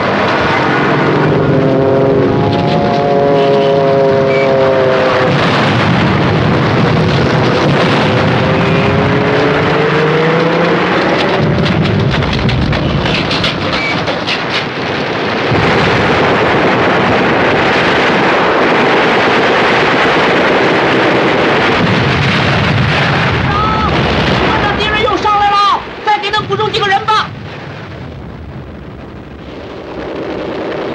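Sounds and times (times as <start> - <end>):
aircraft engine passing: 0.0 - 5.4
explosions: 0.0 - 30.9
gunfire: 4.2 - 25.2.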